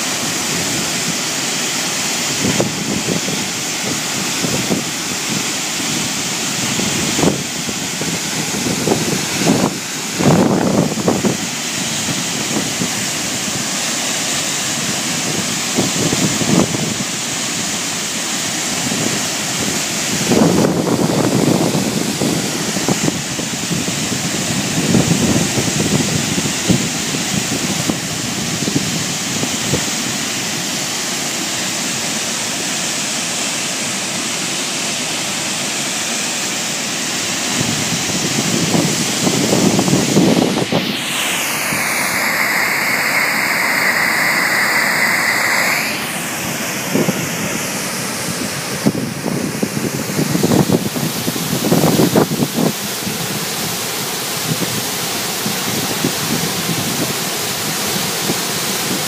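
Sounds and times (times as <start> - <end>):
wind gusts on microphone: 0.0 - 14.0, 14.6 - 17.4, 18.7 - 30.3, 37.5 - 53.7
large waterfall rushing: 0.0 - 59.0.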